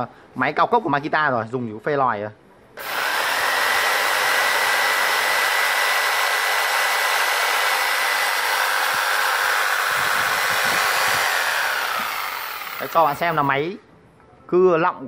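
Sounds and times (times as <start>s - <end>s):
jigsaw motor whining: 2.8s - 13.5s.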